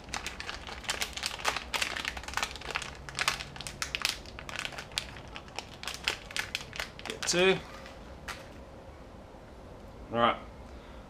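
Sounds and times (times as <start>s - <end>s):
plastic packaging crinkling: 0.0s - 8.6s.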